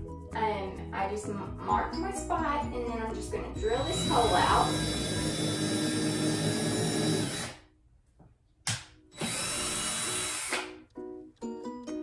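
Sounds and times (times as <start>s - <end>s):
cordless drill boring into wood: 3.6s - 7.6s, 9.2s - 10.7s.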